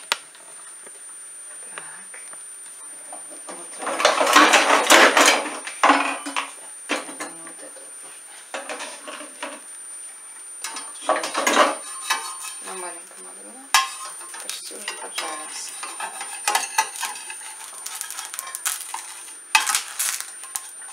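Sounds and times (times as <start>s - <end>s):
clatter and rustling: 3.5s - 7.1s, 13.8s - 20.9s
metal spatula scraping frying pan: 10.6s - 12.8s, 13.8s - 20.9s.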